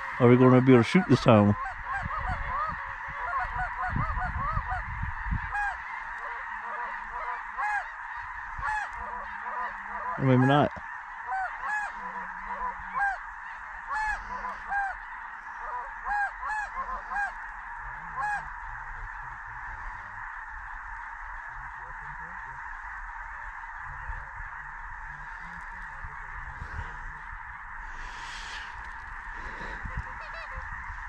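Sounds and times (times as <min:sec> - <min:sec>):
geese honking: 0:00.0 - 0:31.0.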